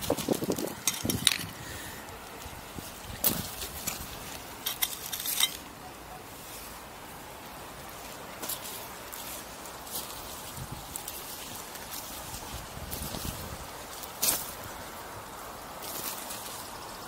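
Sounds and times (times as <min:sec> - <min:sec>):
outdoor hiss: 0:00.0 - 0:17.0
trowel scraping among pebbles: 0:03.2 - 0:05.7.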